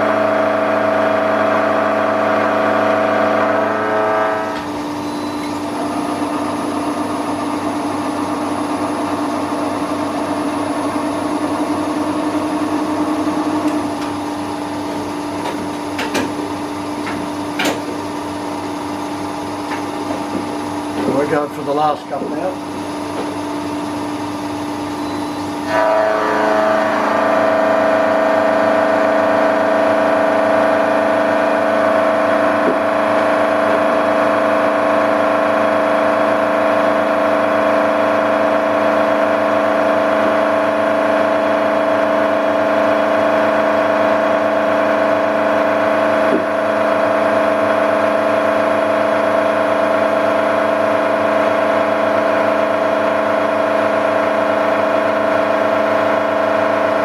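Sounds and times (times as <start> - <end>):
milling cutter whining on steel: 0.0 - 57.0.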